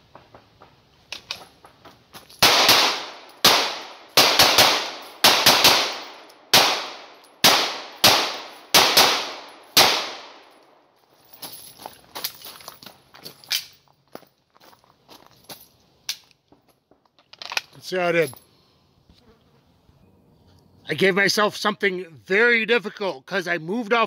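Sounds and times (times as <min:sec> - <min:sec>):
pistol shots echoing: 0:02.4 - 0:10.6.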